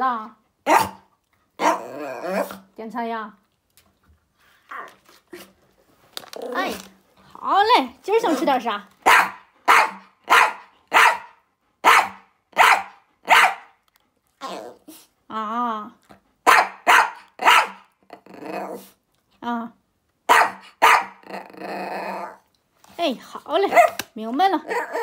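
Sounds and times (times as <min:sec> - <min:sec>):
small dog barking: 0:00.7 - 0:01.0, 0:01.6 - 0:02.5, 0:09.0 - 0:13.7, 0:16.5 - 0:17.9, 0:20.3 - 0:21.2, 0:23.7 - 0:24.0
dog whining: 0:01.6 - 0:02.6, 0:14.4 - 0:15.1, 0:17.6 - 0:19.0, 0:21.2 - 0:22.5, 0:24.6 - 0:25.0.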